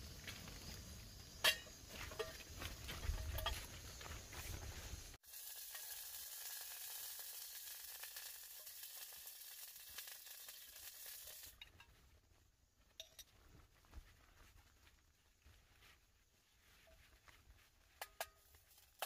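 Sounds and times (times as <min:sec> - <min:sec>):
gas stove hissing: 0:05.2 - 0:11.5.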